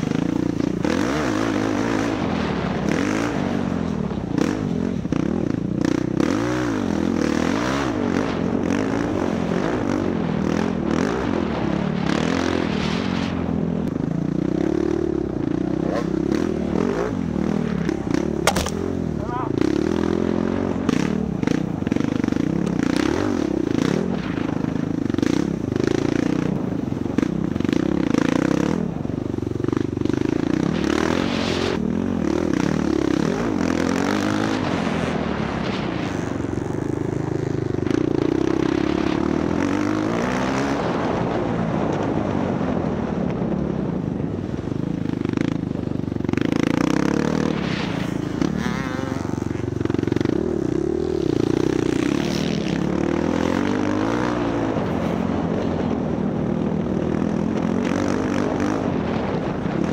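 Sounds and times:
dirt bike engine revving: 0.0 - 43.2, 45.0 - 59.9
bike knocks and rattles: 18.4 - 18.9.

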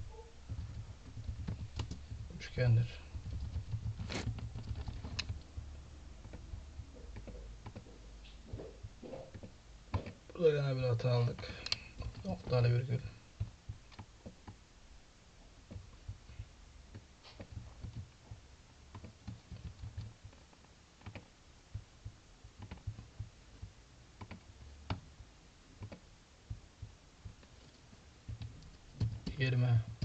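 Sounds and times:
keyboard keystrokes: 3.1 - 5.5, 18.9 - 21.3, 22.6 - 23.3, 24.2 - 25.0, 25.8 - 26.0.

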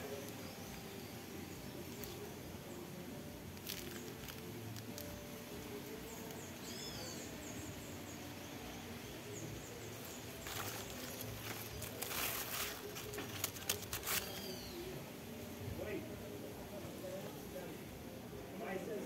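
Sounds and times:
leaves rustling: 0.0 - 17.6
bird whistled call: 14.1 - 15.0.

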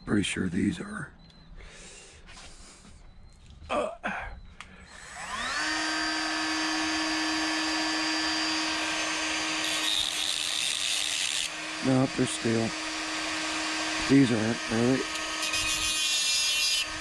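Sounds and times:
power drill whining: 4.6 - 17.0
hissing grind: 7.8 - 17.0.

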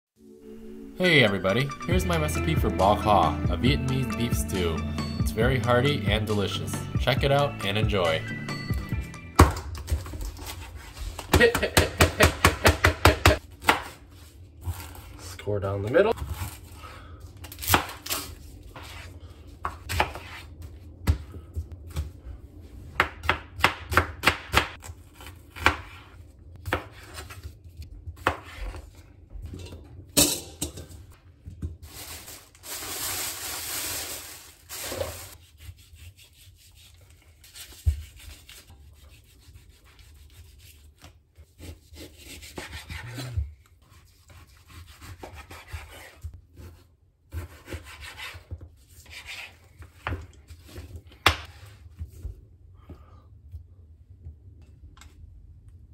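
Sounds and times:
plastic wrapping rustling: 31.8 - 35.4.

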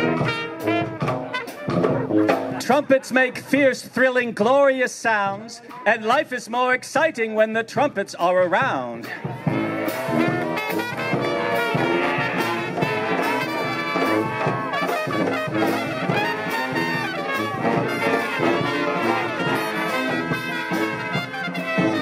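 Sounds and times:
bass drum beat: 0.0 - 3.6, 8.4 - 22.0
brass band playing: 0.0 - 4.2, 9.0 - 22.0.

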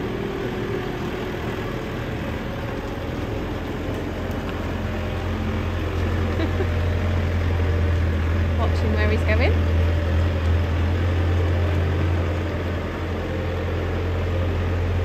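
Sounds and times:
diesel engine low drone: 0.0 - 15.0.

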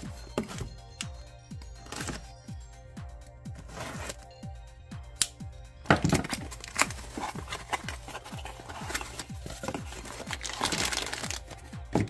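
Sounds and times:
music with kick-drum beat: 0.0 - 12.0
packaging rustling and scraping: 3.5 - 4.2, 6.1 - 12.0.

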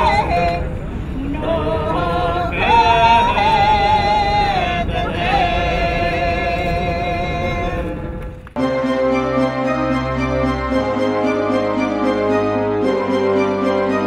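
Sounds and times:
group singing slow folk song: 0.0 - 8.3.

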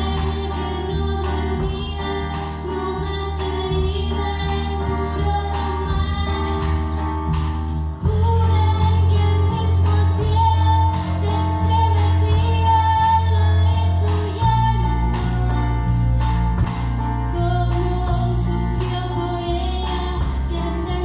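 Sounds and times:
low held bass note: 0.0 - 1.9
girl singing: 0.0 - 6.8, 8.0 - 16.0, 17.3 - 21.0
youth choir singing: 0.0 - 6.8.

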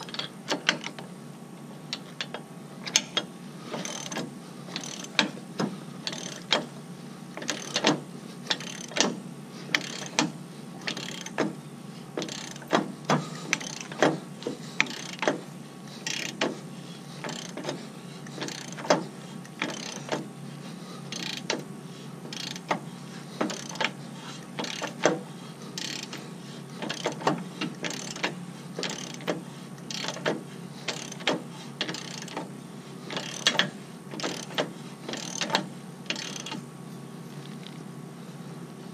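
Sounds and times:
ratchet wrench clicking: 2.0 - 5.4, 6.0 - 6.7, 7.4 - 11.5, 12.2 - 14.2, 14.8 - 15.4, 16.0 - 16.5, 17.2 - 20.2, 21.1 - 21.6, 22.3 - 22.8, 23.4 - 24.0, 24.6 - 25.2, 25.8 - 26.2, 26.8 - 32.5, 33.1 - 36.6.

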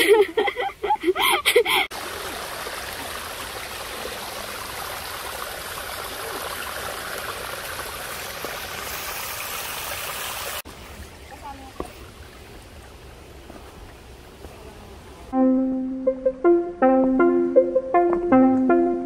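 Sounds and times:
stream rushing over rocks: 1.9 - 10.6.

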